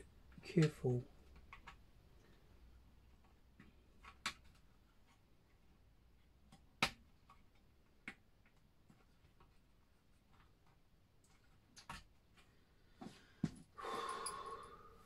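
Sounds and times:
small plastic clicks and taps: 6.4 - 9.6.

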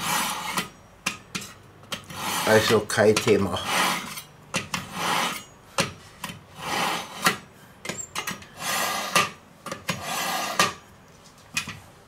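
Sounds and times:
knife scraping through sharpener: 0.0 - 0.8, 1.4 - 5.6, 6.6 - 10.8.

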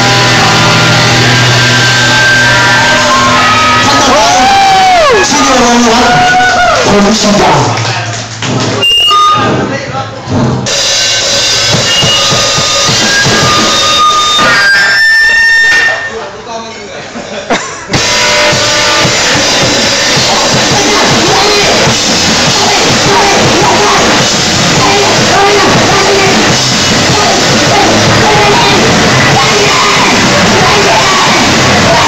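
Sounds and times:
live rock band: 10.7 - 15.5, 17.8 - 32.0
singer yelling: 18.4 - 32.0.

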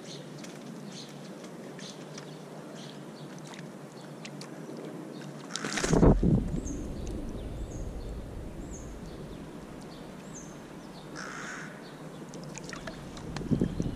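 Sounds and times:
pigeon wings clattering: 5.6 - 6.3.

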